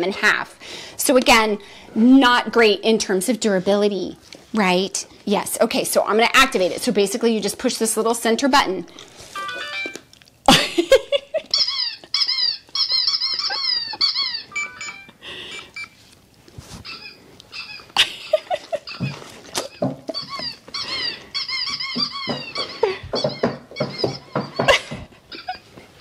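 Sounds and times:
toy ball electronic squeaks: 11.5s - 15.2s, 20.2s - 24.3s
toy ball electronic beeps: 14.5s - 15.1s
dogs mouthing a toy: 16.6s - 24.7s.

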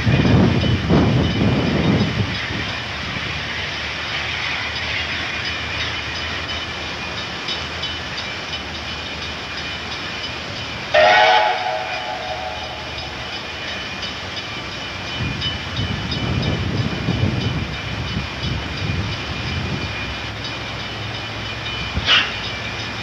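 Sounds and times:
steam locomotive whistle blast: 10.9s - 13.3s.

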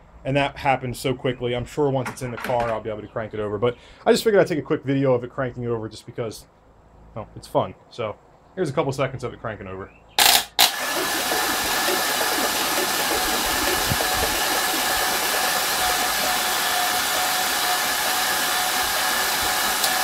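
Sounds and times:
engine starter cranking: 10.2s - 20.0s.

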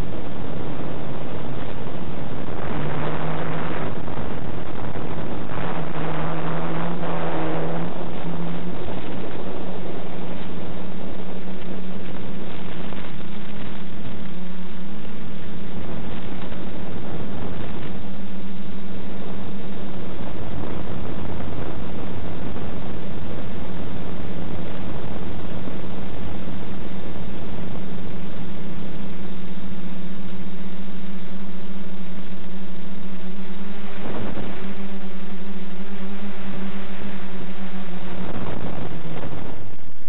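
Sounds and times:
quadcopter motors buzzing: 2.4s - 9.6s.

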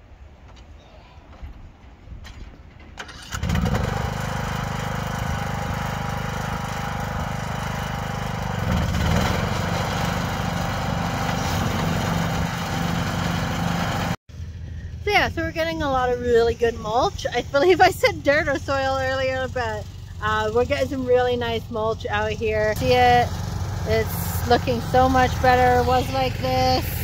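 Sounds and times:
lawn mower engine running: 3.0s - 14.7s, 17.6s - 27.0s.

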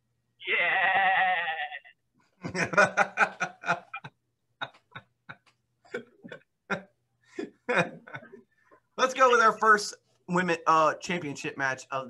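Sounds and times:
wavering bleat-like cry: 0.4s - 2.0s
man laughing hard: 2.4s - 8.4s.

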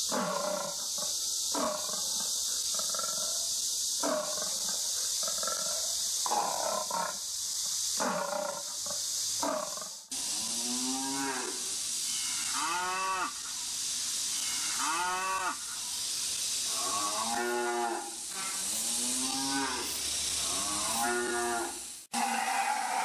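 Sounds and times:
steady hiss: 0.0s - 23.0s
recorded cow moos: 19.2s - 23.0s.

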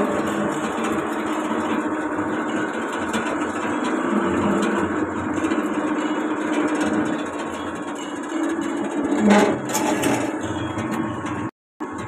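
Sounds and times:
screw press machine droning: 0.0s - 12.0s.

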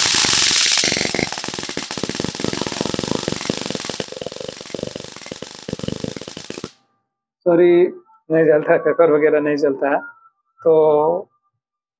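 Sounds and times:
stun torch electric arc crackling: 0.0s - 6.8s.

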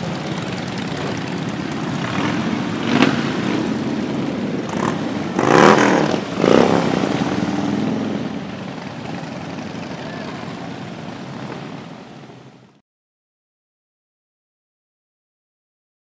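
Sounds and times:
motorcycles riding past: 0.0s - 12.7s.

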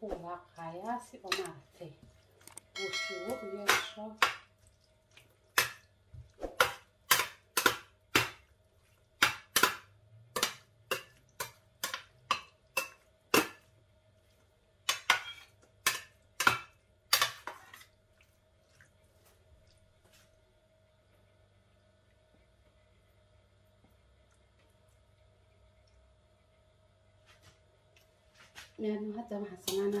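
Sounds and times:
metal spatula clinking on glass dish: 2.8s - 4.0s.

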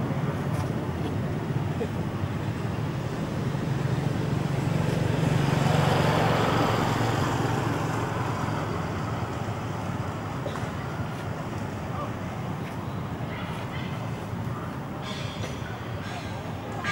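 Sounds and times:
motor vehicle passing: 2.6s - 12.0s.

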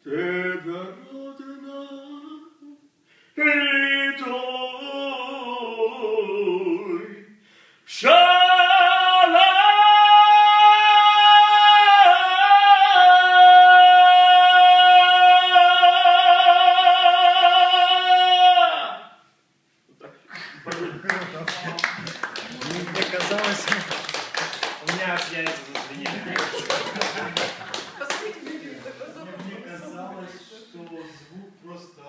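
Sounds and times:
man singing unaccompanied: 0.0s - 19.1s.

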